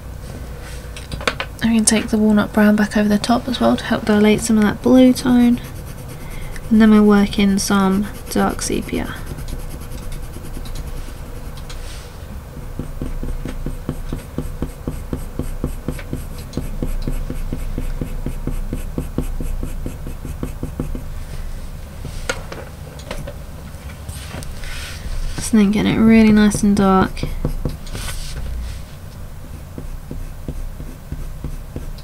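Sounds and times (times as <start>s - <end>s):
pencil scratching on paper: 3.4s - 12.0s, 12.6s - 21.1s, 25.2s - 28.5s, 29.4s - 32.0s.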